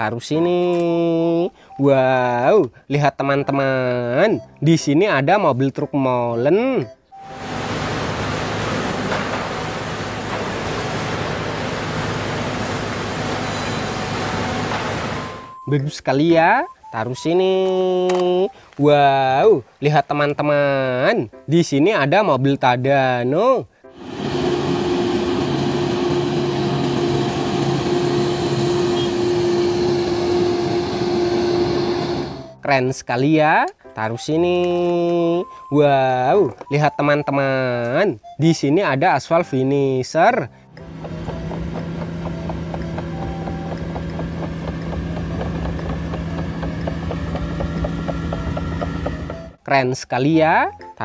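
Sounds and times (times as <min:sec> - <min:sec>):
road noise: 0:07.2 - 0:15.5, 0:23.9 - 0:32.5, 0:40.8 - 0:49.6
diesel truck engine running: 0:07.3 - 0:15.5, 0:24.0 - 0:32.6, 0:40.7 - 0:49.6.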